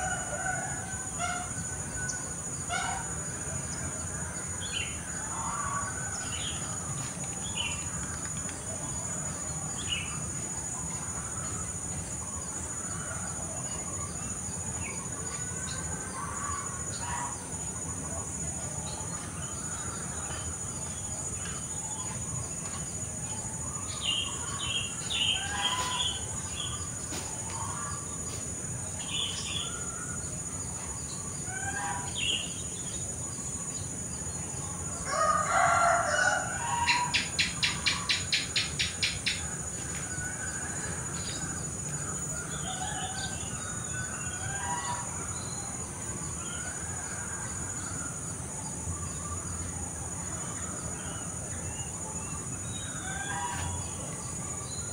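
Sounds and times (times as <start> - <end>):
high insect drone: 0.0 - 54.9
birds calling: 23.6 - 28.4
sharp bird calls: 23.7 - 28.0
rooster crowing: 35.0 - 38.0.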